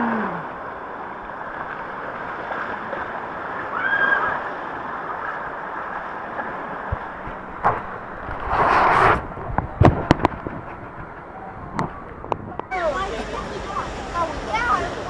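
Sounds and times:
water rushing down waterslide: 0.0s - 15.0s.

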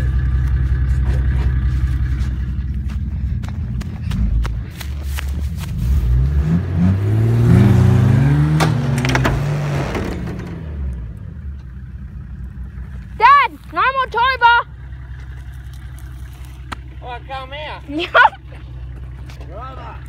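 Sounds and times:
engine revving under load: 0.0s - 12.7s.

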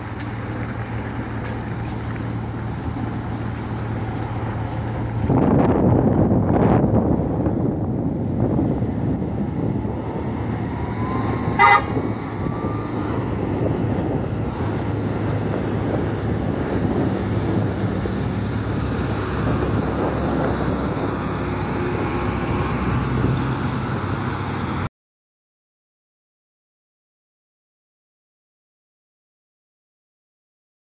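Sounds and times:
bus engine under load: 0.0s - 24.9s
bus horn toot: 11.5s - 12.1s.

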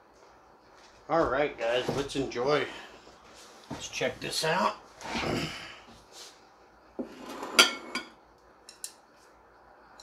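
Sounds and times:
light ticks of utensils: 8.4s - 9.3s.

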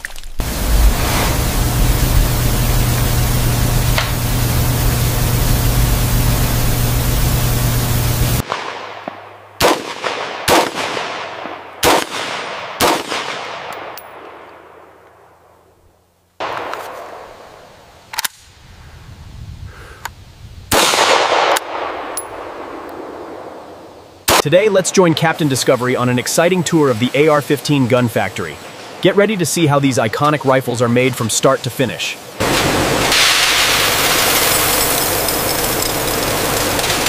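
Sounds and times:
loud steady hiss with low hum: 0.2s - 13.8s, 14.7s - 37.0s
loud long blast: 0.4s - 11.2s, 32.4s - 35.1s
rifle shots echoing: 8.4s - 14.9s, 20.7s - 23.7s.

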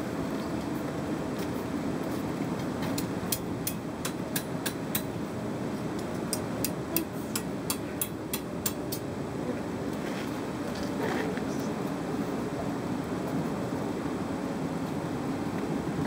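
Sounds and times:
hammer tapping on anvil: 6.3s - 9.0s.

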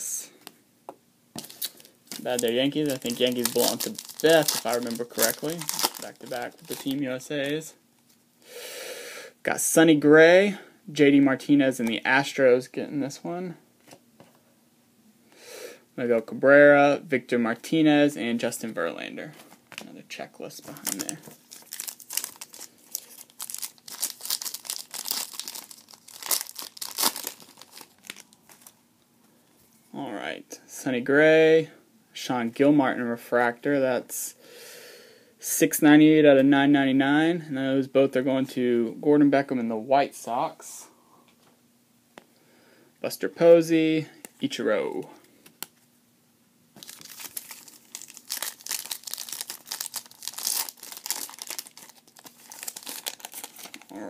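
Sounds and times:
foil wrapper crinkling: 1.4s - 7.6s, 20.8s - 28.8s, 46.8s - 54.0s.

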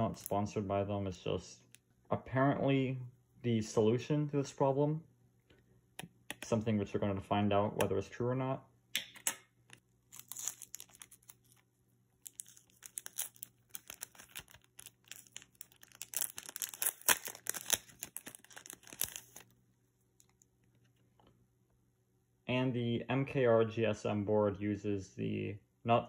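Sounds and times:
plastic packaging crinkling: 10.0s - 19.5s.

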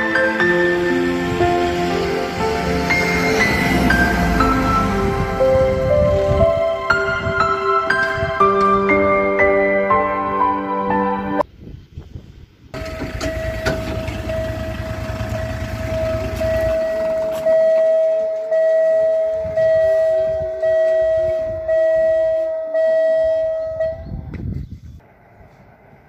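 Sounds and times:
music: 0.0s - 11.4s
low tone falling in pitch: 0.5s - 10.2s, 12.8s - 24.4s
level crossing warning bell ringing: 12.8s - 24.0s.

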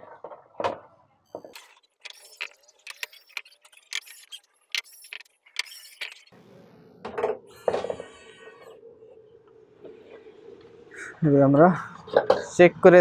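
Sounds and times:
metallic clicks and scrapes: 1.5s - 6.4s.

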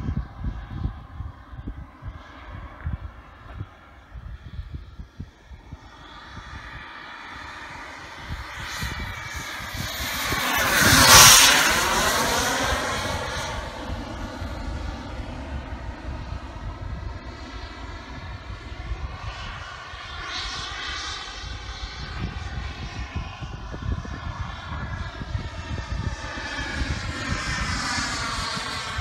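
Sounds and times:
model jet engine whine: 0.0s - 29.0s.

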